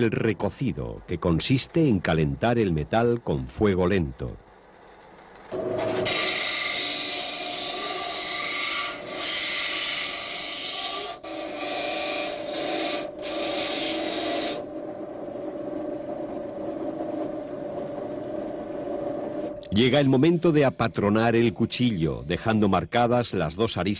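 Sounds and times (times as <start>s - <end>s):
bench grinder humming: 5.5s - 14.7s
grinder wheel grinding steel: 5.5s - 15.0s.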